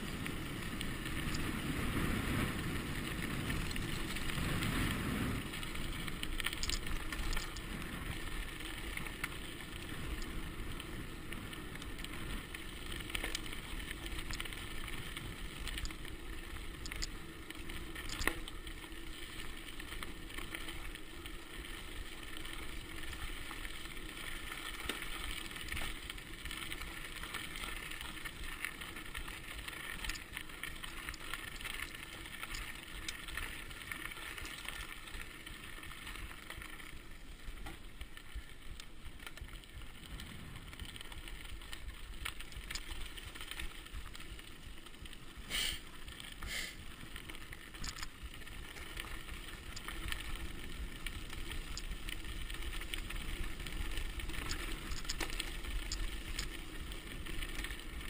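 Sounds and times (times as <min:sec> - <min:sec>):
wind over microphone: 0:00.0 - 0:08.2
bike tyres on gravel: 0:00.0 - 0:58.0.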